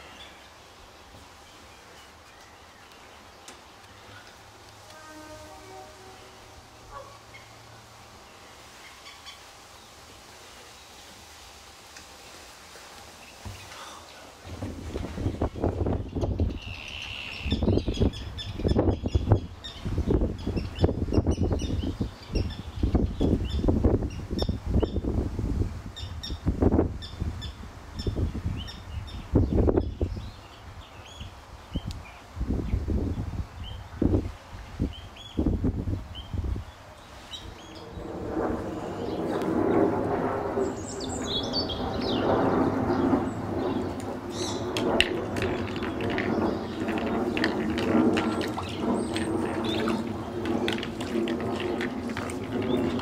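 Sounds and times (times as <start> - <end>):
wind rumbling on microphone: 13.4 - 53.0
birds chirping: 15.2 - 25.1, 40.6 - 53.0
otters splashing in water: 44.7 - 53.0.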